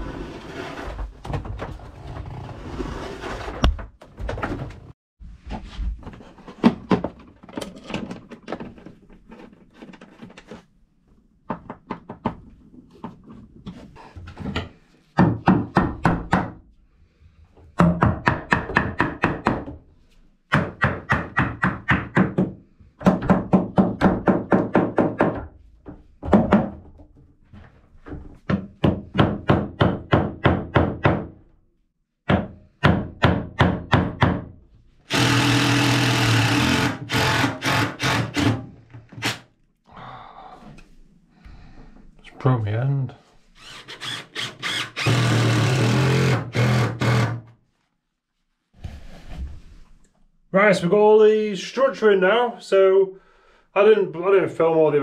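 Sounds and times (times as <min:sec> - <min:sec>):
hammer striking timber: 0:15.2 - 0:16.6, 0:17.8 - 0:19.7, 0:28.5 - 0:31.4, 0:32.2 - 0:34.5.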